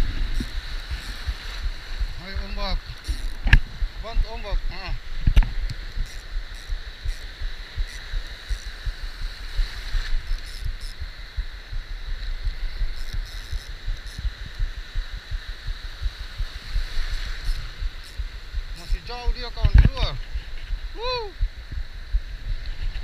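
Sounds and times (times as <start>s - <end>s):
shallow surf sloshing: 0.0s - 10.4s, 15.8s - 18.8s.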